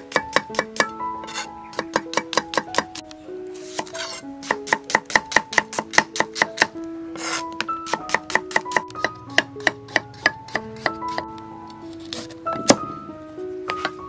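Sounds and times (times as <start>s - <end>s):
cleaver chopping on wooden board: 0.1s - 3.0s.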